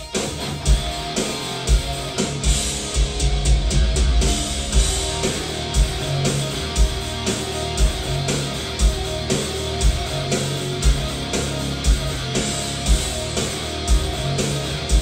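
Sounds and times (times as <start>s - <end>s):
rock music with guitar and drums: 0.0s - 15.0s
heavy kick drum thudding: 1.7s - 7.2s.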